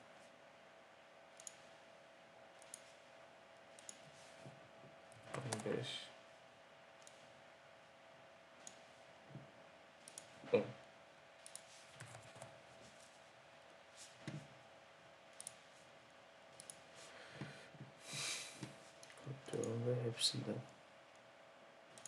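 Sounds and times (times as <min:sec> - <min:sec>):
faint steady hum: 0:00.0 - 0:22.0
computer mouse clicks: 0:01.3 - 0:01.7, 0:02.6 - 0:03.0, 0:03.7 - 0:04.2, 0:05.1 - 0:05.8, 0:07.0 - 0:07.3, 0:08.6 - 0:08.9, 0:10.0 - 0:10.4, 0:11.4 - 0:12.6, 0:15.3 - 0:15.6, 0:16.6 - 0:16.8.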